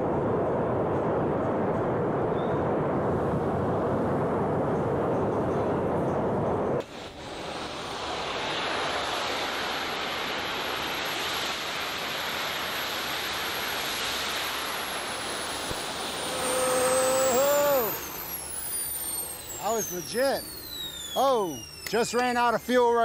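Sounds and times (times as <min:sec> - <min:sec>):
small jet engine whine: 0:00.0 - 0:23.0.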